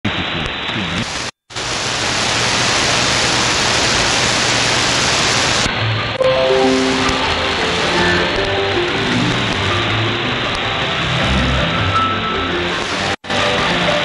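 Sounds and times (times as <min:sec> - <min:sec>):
radio static hiss: 0:00.1 - 0:11.0, 0:12.7 - 0:13.3.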